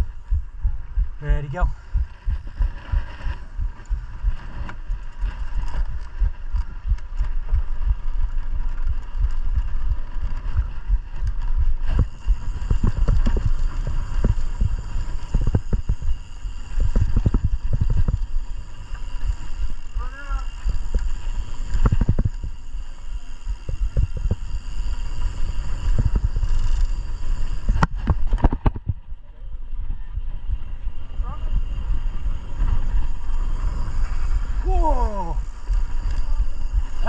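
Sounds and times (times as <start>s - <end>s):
bike rumble on rough trail: 0.0s - 37.0s
bike thumps and rattles: 23.4s - 29.1s.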